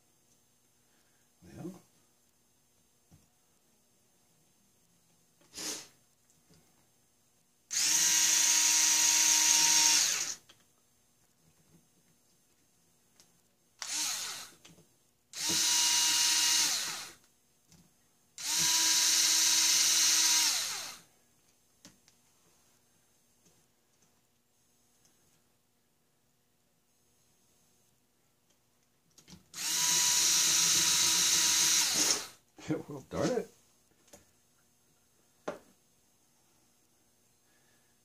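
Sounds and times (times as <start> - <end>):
electric screwdriver running: 7.7 - 10.4, 13.8 - 14.6, 15.4 - 17.2, 18.4 - 21.0, 29.6 - 32.4.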